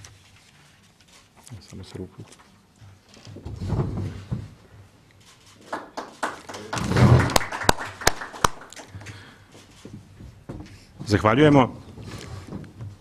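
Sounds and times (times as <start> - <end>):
shuffling: 0.0 - 5.8, 8.8 - 13.0.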